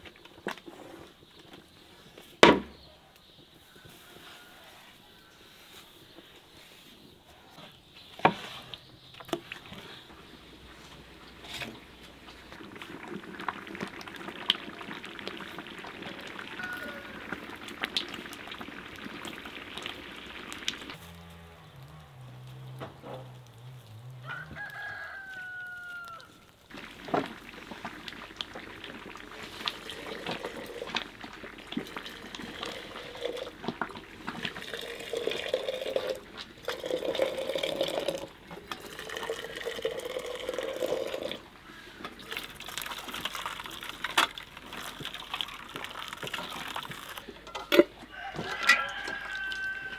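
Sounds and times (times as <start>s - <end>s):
rooster crowing: 3.6s - 5.4s, 16.1s - 17.6s, 23.3s - 26.5s, 48.0s - 49.9s
water pouring into glass jars: 11.2s - 21.0s, 26.6s - 47.6s, 48.4s - 49.9s.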